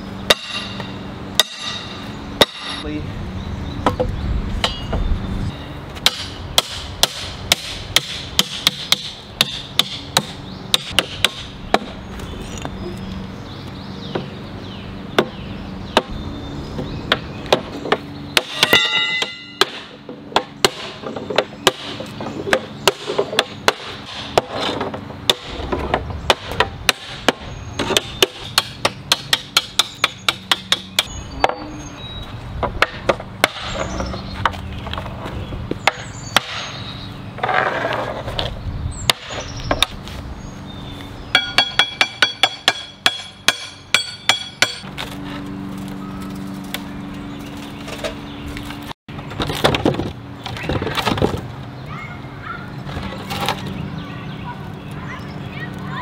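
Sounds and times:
hammer striking hoop driver: 0.3s - 2.9s, 17.1s - 24.6s, 41.3s - 44.9s
metal ringing: 0.3s - 3.0s, 4.6s - 5.0s, 18.4s - 20.0s, 41.3s - 44.9s.

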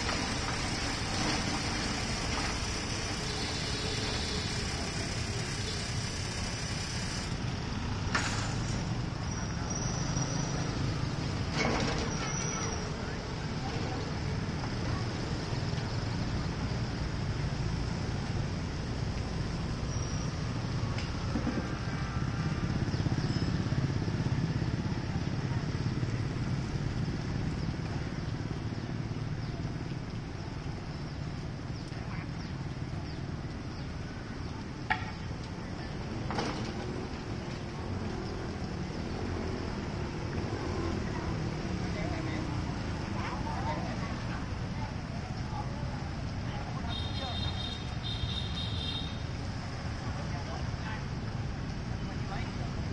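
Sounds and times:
rain hiss: 0.0s - 52.9s
street traffic hum: 0.0s - 52.9s.

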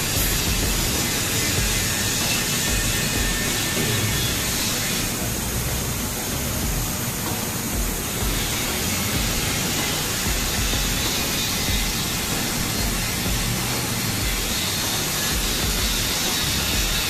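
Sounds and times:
laser cutter gas jet hissing: 0.0s - 17.0s
machine running noise: 0.0s - 17.0s.

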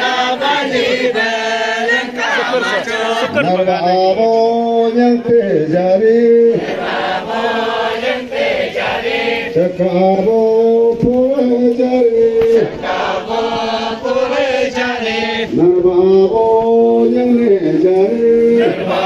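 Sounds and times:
group chanting in unison: 0.0s - 3.5s, 5.9s - 9.9s, 12.2s - 15.7s, 18.2s - 19.0s.

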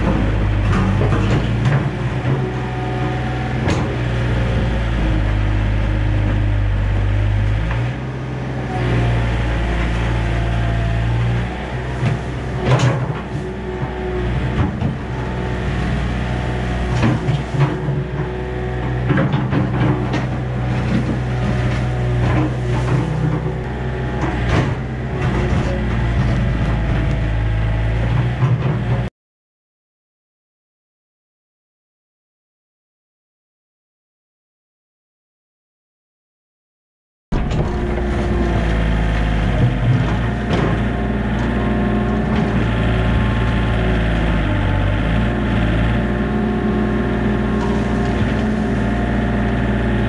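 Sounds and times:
excavator diesel engine: 0.0s - 29.1s, 37.3s - 50.0s
bucket scraping dirt and stones: 37.3s - 43.5s, 47.3s - 49.2s.

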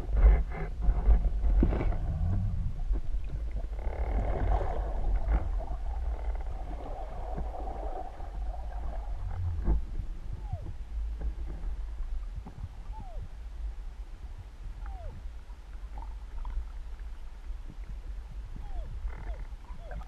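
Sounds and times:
muffled underwater rumble: 0.0s - 20.0s.

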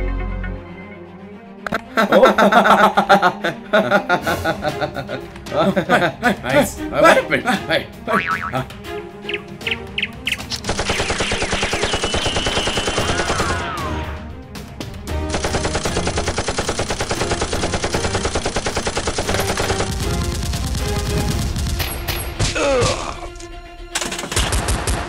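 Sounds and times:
rapid automatic gunfire: 10.6s - 13.6s, 15.2s - 22.1s.

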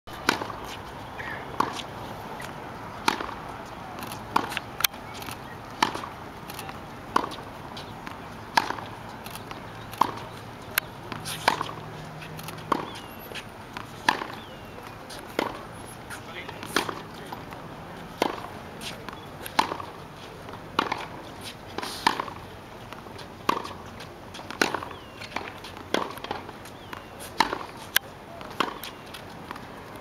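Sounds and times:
tennis ball racket hits: 0.1s - 30.0s.

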